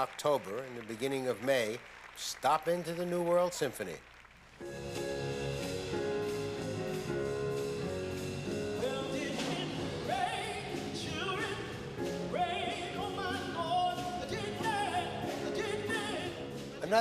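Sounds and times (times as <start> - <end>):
orchestral music: 4.6 - 17.0
person singing with vibrato: 8.6 - 17.0.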